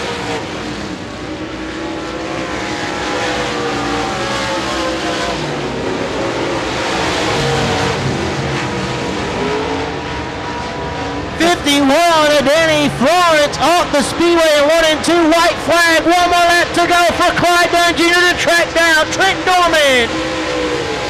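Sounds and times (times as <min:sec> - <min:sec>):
race car engines passing: 0:00.0 - 0:21.0.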